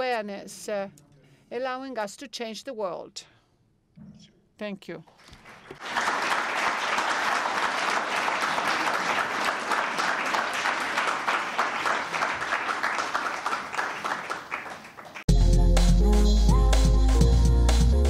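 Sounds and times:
audience applauding: 0:05.3 - 0:15.3.

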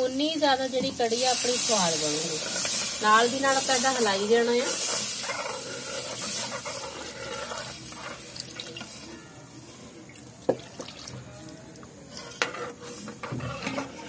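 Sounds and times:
liquid pouring and splashing into pan: 0:06.8 - 0:09.0, 0:10.1 - 0:11.3.

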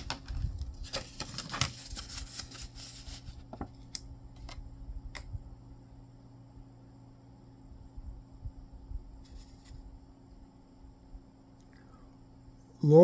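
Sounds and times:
packaging crinkling and rustling: 0:00.0 - 0:03.8
faint electrical hum: 0:00.0 - 0:13.0.

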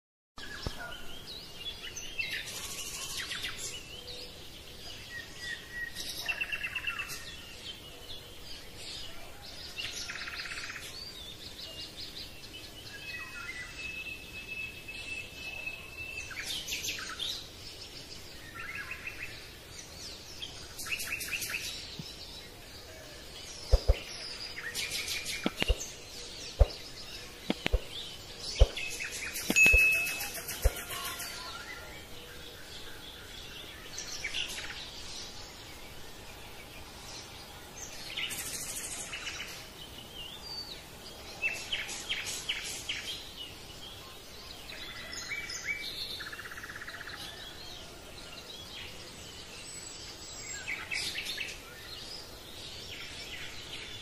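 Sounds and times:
birds chirping and singing: 0:00.4 - 0:54.0.

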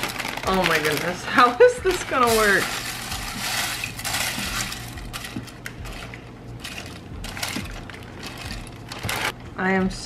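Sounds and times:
dry noodles rustling: 0:00.0 - 0:09.4.

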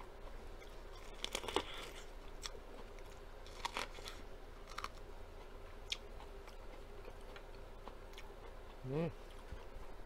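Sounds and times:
corn on the cob crunching: 0:01.0 - 0:05.0.

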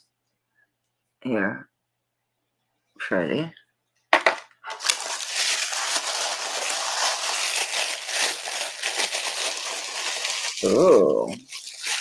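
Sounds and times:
tissue paper crinkling: 0:04.7 - 0:12.0.

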